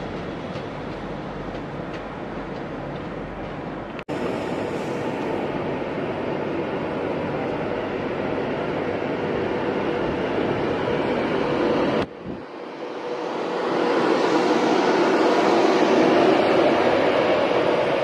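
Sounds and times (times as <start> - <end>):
electric train moving off: 4.1 - 18.0.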